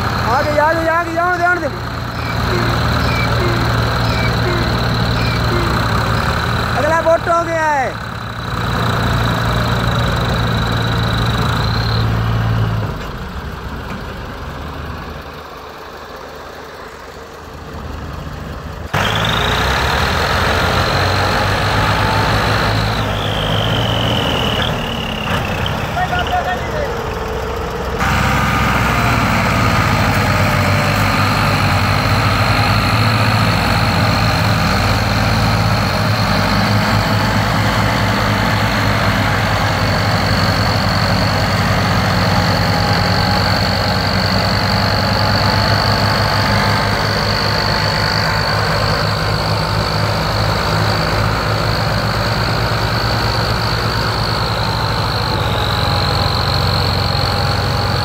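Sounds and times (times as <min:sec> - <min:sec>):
high whine: 0:00.0 - 0:07.2
tractor engines straining: 0:00.0 - 0:58.0.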